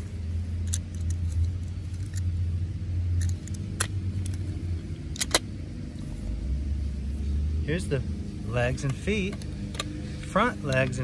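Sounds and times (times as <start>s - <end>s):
steady low hum: 0.0s - 11.0s
sharp plastic snaps: 3.1s - 5.6s.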